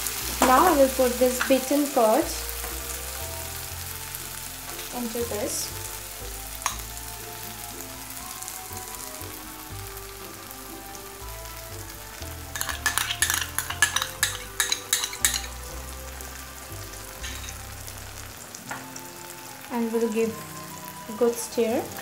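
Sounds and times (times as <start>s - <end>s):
masala sizzling in a pan: 0.0s - 22.0s
sharp crackles and clicks: 12.5s - 15.7s.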